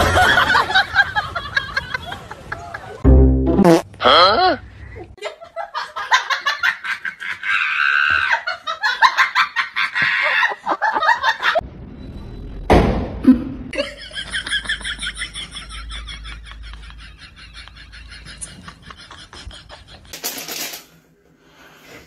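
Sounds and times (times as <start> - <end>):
loud human laughter: 0.0 - 3.0, 5.1 - 11.6, 13.7 - 20.2
thump: 12.7 - 13.2.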